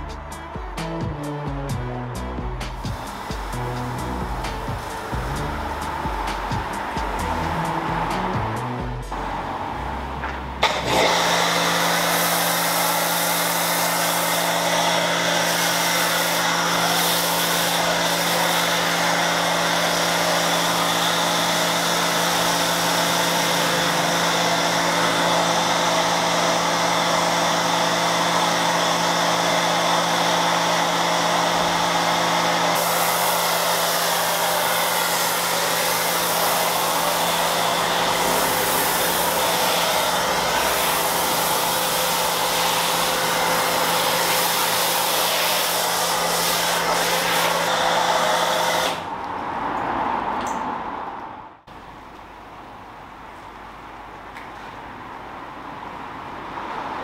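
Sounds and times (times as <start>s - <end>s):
pressure washer motor hum: 2.5s - 49.1s
foam spraying hiss: 2.7s - 9.6s, 10.7s - 24.3s, 32.7s - 49.1s.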